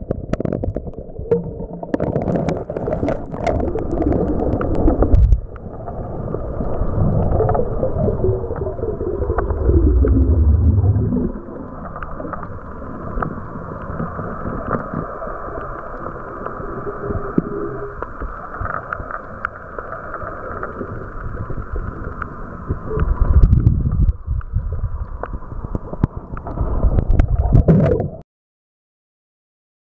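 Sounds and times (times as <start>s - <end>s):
underwater churning and gurgling: 0.0s - 28.2s
heavy rumbling water surges: 2.1s - 19.4s.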